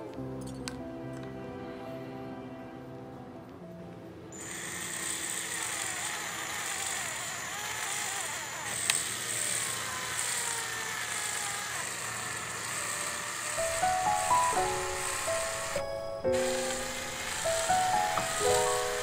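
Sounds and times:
power tool motor whining: 0:04.4 - 0:19.0.

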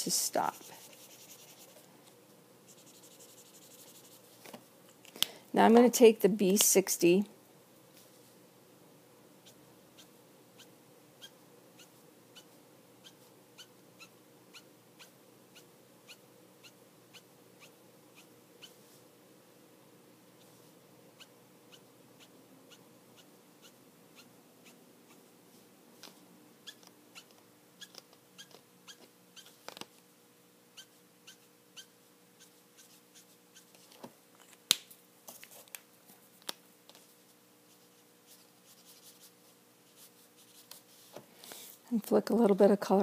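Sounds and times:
faint steady hum: 0:00.0 - 0:43.0
marker ticks and scratches on paper: 0:00.4 - 0:01.8, 0:02.7 - 0:04.3.

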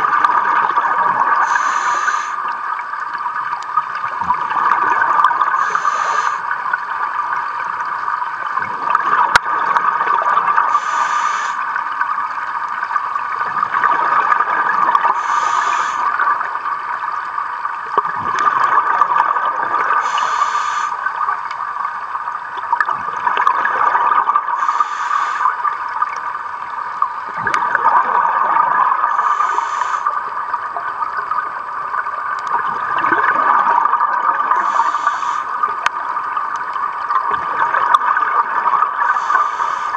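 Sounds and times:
exhaled air bubbling underwater: 0:00.0 - 0:39.9
regulator inhalation hiss: 0:01.4 - 0:02.6, 0:05.6 - 0:06.6, 0:10.7 - 0:11.8, 0:15.1 - 0:16.2, 0:20.0 - 0:21.1, 0:24.6 - 0:25.6, 0:29.1 - 0:30.2, 0:34.5 - 0:35.7, 0:39.0 - 0:39.9.

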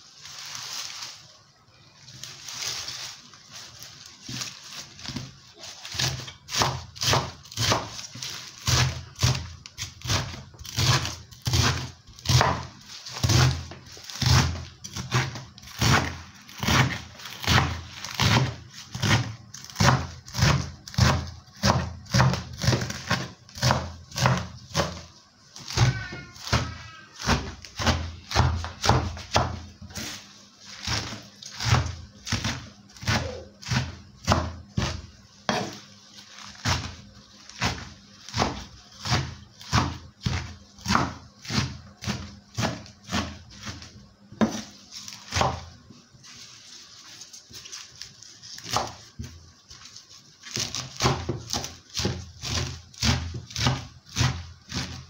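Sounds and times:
knife chopping on wooden board: 0:05.9 - 0:25.0, 0:27.2 - 0:30.1, 0:30.8 - 0:35.8, 0:37.6 - 0:45.7, 0:48.6 - 0:49.4, 0:50.5 - 0:55.0.

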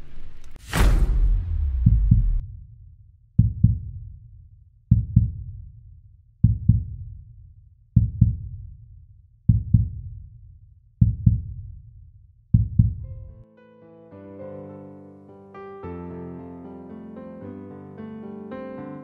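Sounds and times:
heartbeat double thump: 0:00.7 - 0:02.4, 0:11.0 - 0:11.5, 0:12.5 - 0:13.1.

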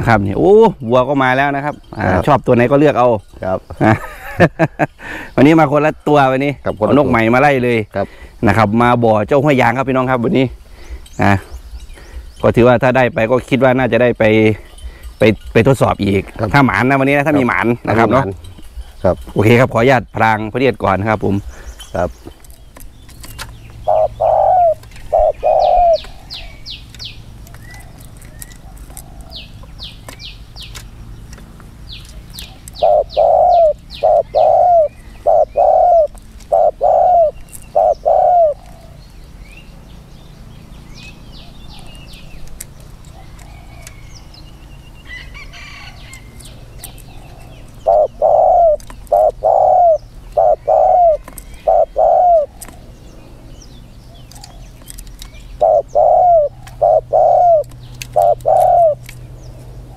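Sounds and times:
small birds chirping: 0:00.0 - 0:59.9
dove cooing: 0:23.3 - 0:30.8, 0:31.9 - 0:39.2, 0:45.1 - 0:59.9.

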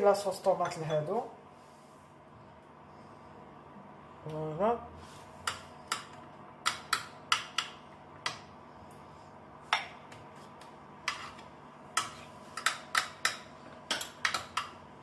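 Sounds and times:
spoon scraping ceramic dish: 0:11.0 - 0:12.8.

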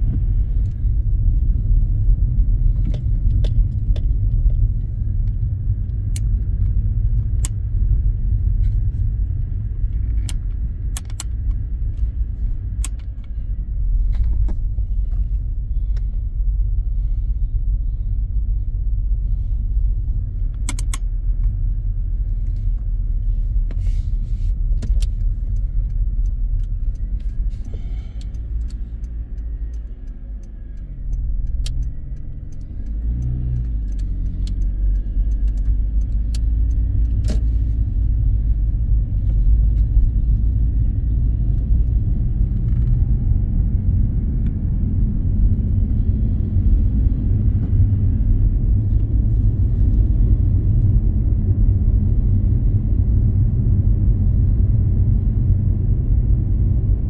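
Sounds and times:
car engine and tyres rumbling: 0:00.0 - 0:57.0
sharp clicks: 0:09.9 - 0:11.6, 0:20.5 - 0:21.1, 0:24.7 - 0:37.5.

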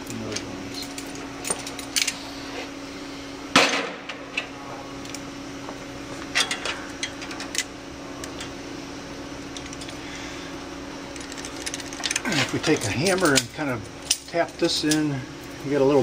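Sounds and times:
steady low hum: 0:00.0 - 0:16.0
metal tools clicking: 0:11.2 - 0:15.1.

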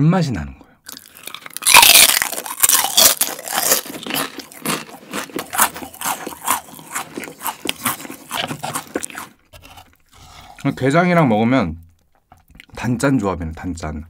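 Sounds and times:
crunching chip bites: 0:00.9 - 0:10.1.

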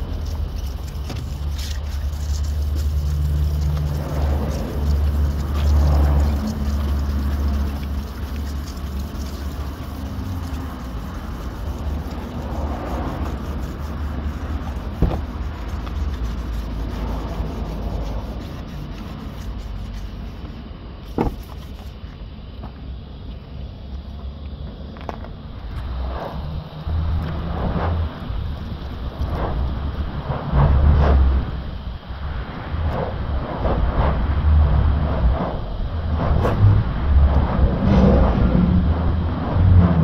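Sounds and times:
sanding pad scrubbing: 0:00.0 - 0:22.0
low steady rumble: 0:00.0 - 0:40.0.

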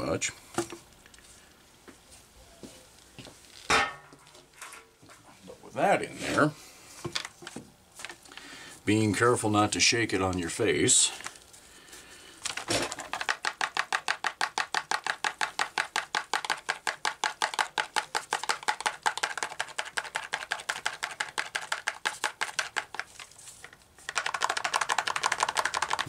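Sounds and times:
tank being shaken: 0:12.4 - 0:26.0.

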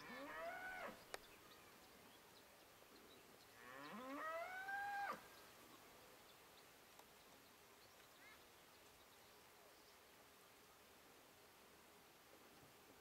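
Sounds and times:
faint rising animal calls: 0:03.8 - 0:05.3.

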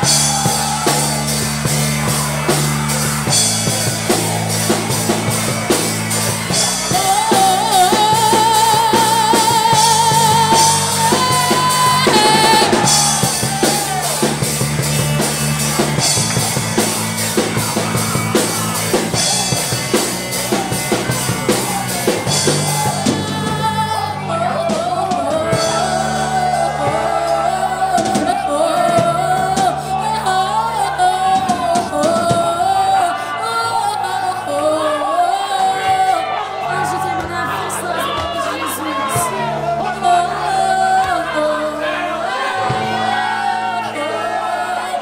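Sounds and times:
drum kit beat: 0:00.0 - 0:30.2
bass guitar: 0:00.0 - 0:45.0
electric guitar: 0:00.0 - 0:45.0
woman singing into a microphone: 0:06.8 - 0:13.4, 0:22.9 - 0:45.0.

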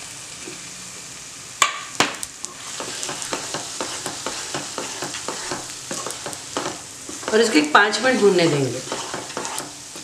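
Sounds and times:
food sizzling in a pan: 0:00.0 - 0:10.0
spatula scraping and tapping pan: 0:02.5 - 0:07.6, 0:08.2 - 0:10.0.

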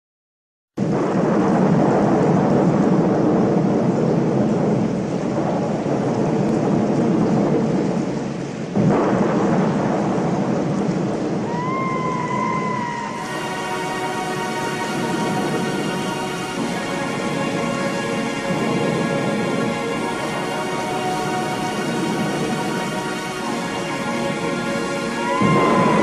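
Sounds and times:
rolling thunder: 0:00.8 - 0:26.0
steady rain: 0:00.8 - 0:26.0
held musical tone: 0:13.2 - 0:26.0.

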